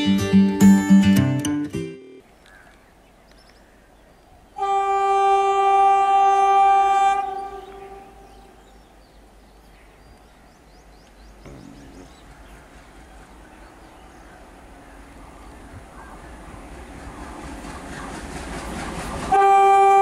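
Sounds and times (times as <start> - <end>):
locomotive air horn blast: 4.6 - 8.6, 19.3 - 20.0.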